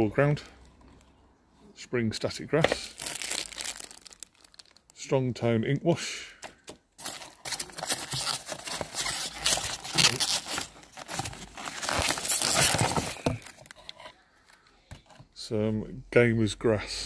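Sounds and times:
packing peanuts rustling and crackling: 2.7 - 5.0, 7.0 - 13.8.

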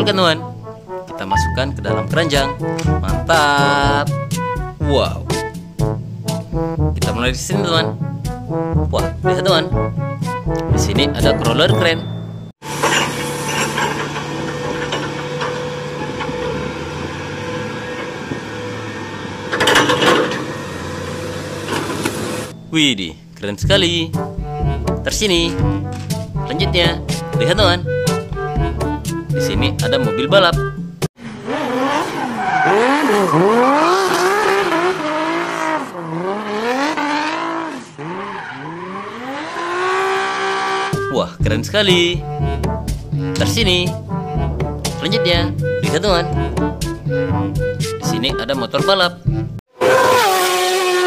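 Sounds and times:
diesel crane engine running: 12.1 - 23.4
crane clatter: 12.6 - 22.6
car engine revving hard: 13.0 - 22.5, 31.2 - 41.0, 49.7 - 51.0
tyres squealing: 31.7 - 36.0, 37.5 - 40.9.

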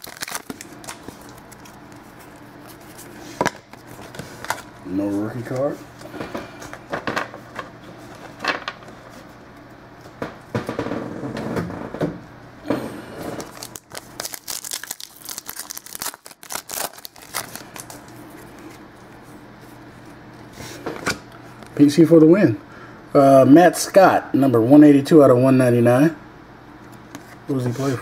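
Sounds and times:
paper and wrapper crinkling: 0.0 - 5.8, 13.4 - 19.8.

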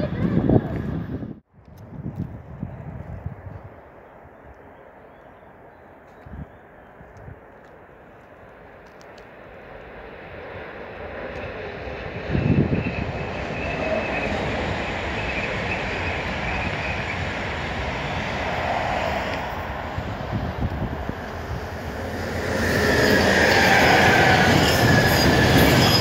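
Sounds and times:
electric freight train rolling: 9.6 - 26.0.

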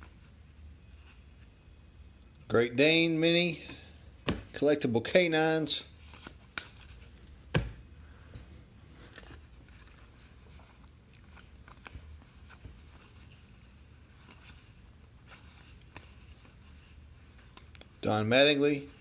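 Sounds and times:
low steady hum: 0.0 - 19.0
cards being flipped off a stack: 6.1 - 7.8.

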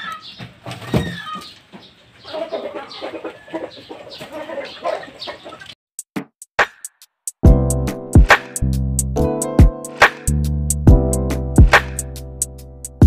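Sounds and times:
chickens clucking: 0.0 - 5.8.

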